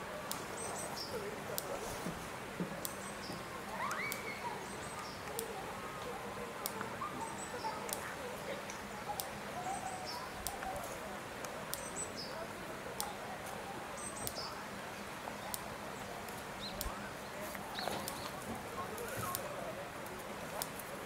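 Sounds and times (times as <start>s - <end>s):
distant voices: 0.0s - 21.0s
small bird calling: 2.8s - 14.7s.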